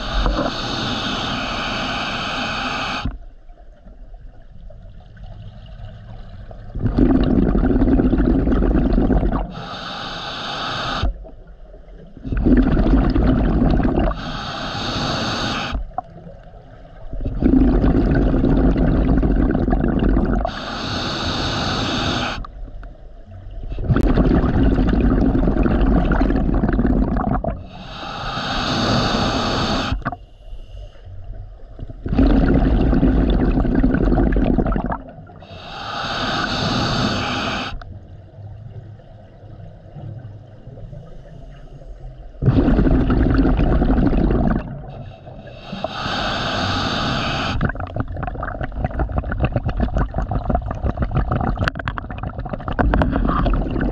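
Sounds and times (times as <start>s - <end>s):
regulator inhalation hiss: 0.0s - 3.2s, 9.5s - 11.2s, 14.0s - 15.8s, 20.4s - 22.5s, 27.6s - 31.2s, 35.4s - 37.8s, 44.8s - 47.7s
diver exhaling bubbles: 6.7s - 10.0s, 12.2s - 16.0s, 17.2s - 22.4s, 23.7s - 30.2s, 32.0s - 37.8s, 42.4s - 53.9s.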